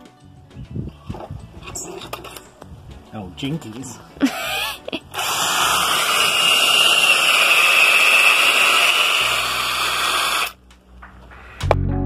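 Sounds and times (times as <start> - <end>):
cordless drill boring into wood: 4.3 - 10.6.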